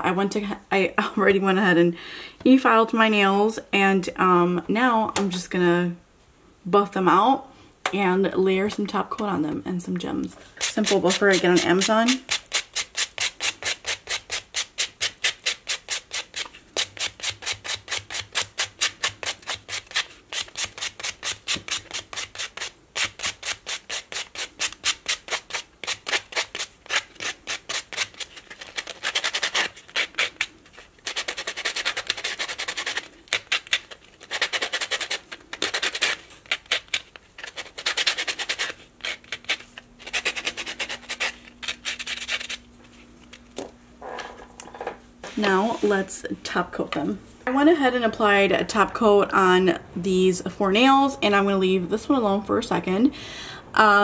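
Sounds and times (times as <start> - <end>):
nail buffer rubbing nails: 10.6 - 43.4.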